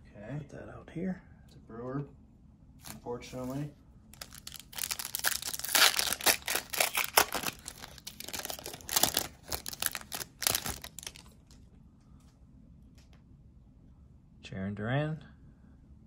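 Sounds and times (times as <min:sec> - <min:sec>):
foil wrapper crinkling: 0:04.2 - 0:11.6.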